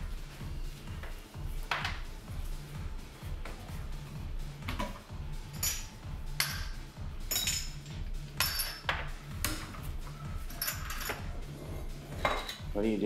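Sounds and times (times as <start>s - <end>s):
background music with low beat: 0.0s - 13.0s.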